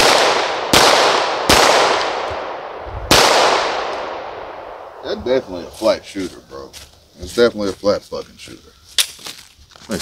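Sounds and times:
pistol shots echoing: 0.0 - 5.2.

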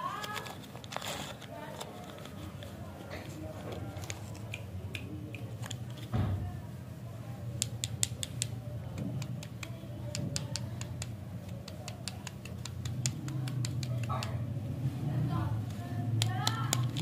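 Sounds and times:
candy wrapper crackling: 0.0 - 4.7
thump: 6.1 - 6.5.

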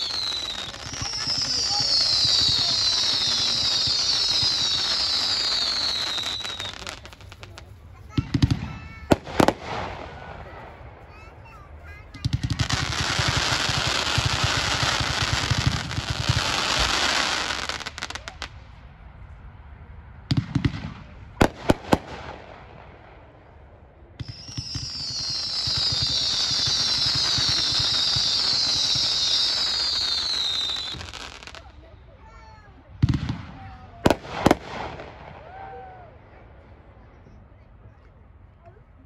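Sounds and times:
falling firework whistle: 0.0 - 7.0, 24.2 - 31.5
sharp firework bangs: 0.0 - 18.5
firework volley crackling: 0.0 - 39.0.

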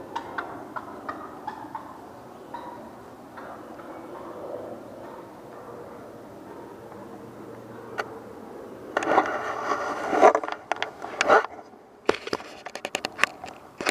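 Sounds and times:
gun handling rustling and scraping: 9.0 - 13.9.

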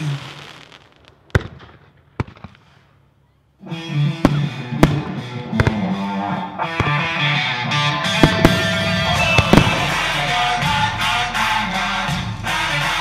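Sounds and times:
firework reports: 0.0 - 13.0
music: 3.6 - 13.0.

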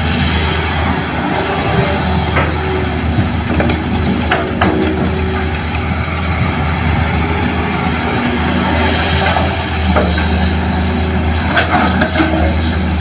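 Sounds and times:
excavator diesel engine running: 0.0 - 13.0
soil load knocks and clunks: 1.7 - 5.8, 11.3 - 12.9.

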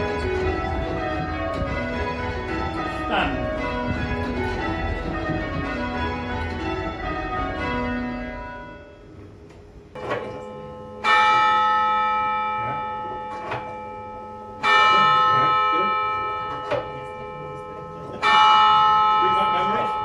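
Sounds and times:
change ringing tower bells: 0.0 - 20.0
single church bell striking: 10.0 - 20.0.

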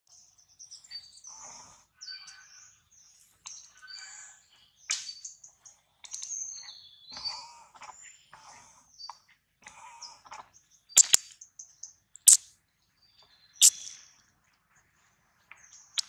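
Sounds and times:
high-pitched animal chirping: 11.0 - 11.3, 12.2 - 12.4, 13.6 - 13.9.

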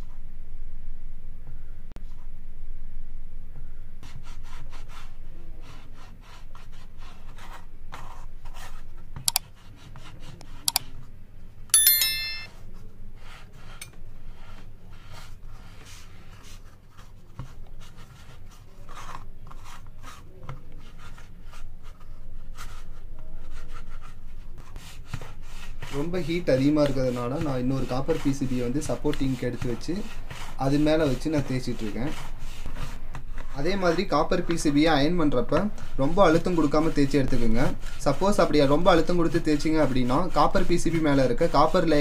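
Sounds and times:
brief metallic ring: 11.8 - 12.5.

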